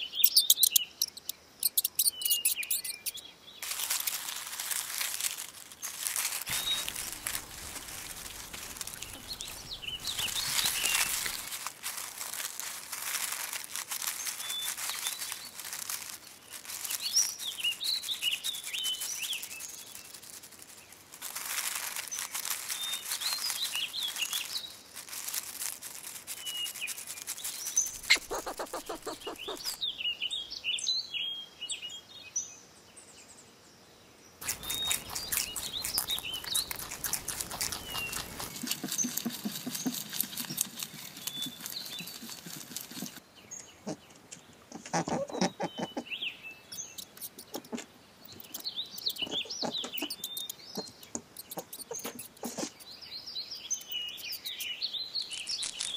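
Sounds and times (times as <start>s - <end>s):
small birds chirping: 0.0s - 33.4s, 34.3s - 55.9s
dense crackling rustle: 2.8s - 29.8s, 34.4s - 43.2s, 55.2s - 55.9s.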